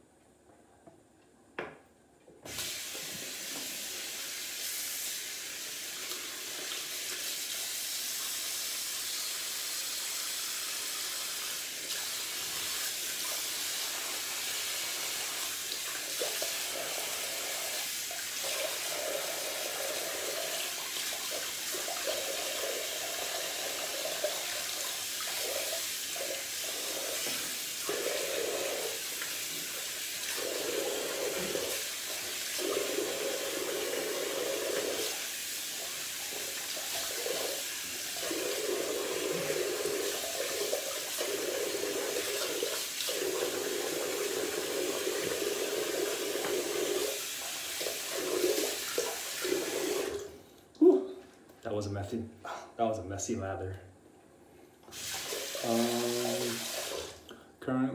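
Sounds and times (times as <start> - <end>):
tap water running into sink: 2.5 - 50.4, 54.9 - 57.2
water stream splashing unevenly: 54.9 - 57.2.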